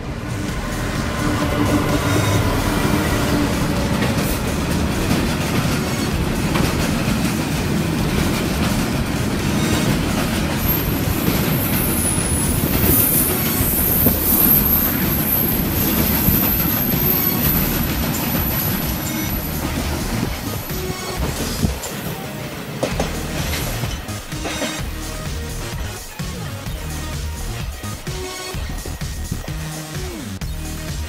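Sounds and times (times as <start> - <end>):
high-pitched wheel squeal: 0.0 - 6.2, 9.4 - 22.3
wagon wheels clattering on rails: 0.0 - 29.7
freight train rolling past: 0.0 - 30.8.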